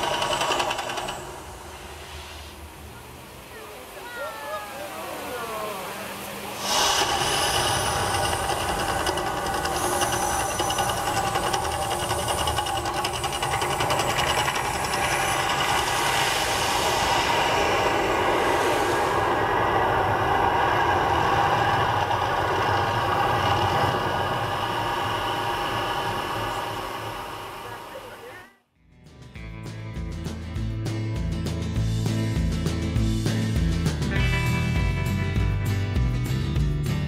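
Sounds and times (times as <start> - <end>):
gas flame roaring: 0.0 - 3.5, 6.0 - 28.4
amplified eruption sound effects: 6.5 - 28.2.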